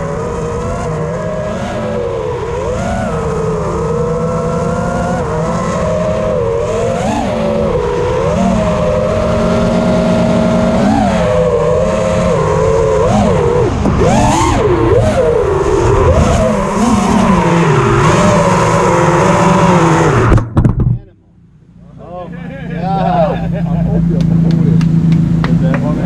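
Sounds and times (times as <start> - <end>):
quadcopter motors whining: 0.0 - 20.4.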